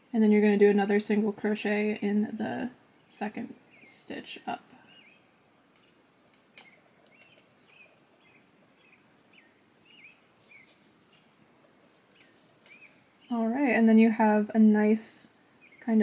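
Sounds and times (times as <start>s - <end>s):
soft clicks: 5.7s - 7.5s.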